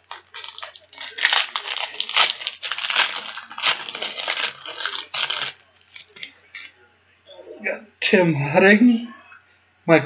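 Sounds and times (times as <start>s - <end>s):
foil wrapper crinkling: 0.0s - 6.3s.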